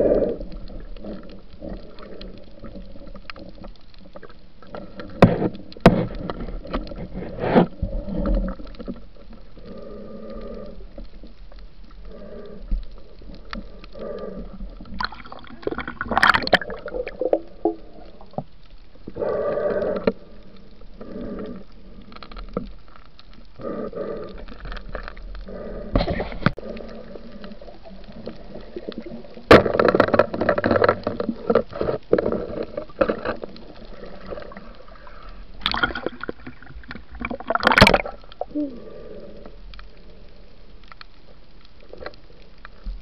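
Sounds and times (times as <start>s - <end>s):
muffled underwater noise: 0.0s - 43.0s
muffled water rushing: 0.0s - 43.0s
underwater clicks and knocks: 0.9s - 9.4s, 14.7s - 18.6s, 28.1s - 34.7s, 35.6s - 38.5s.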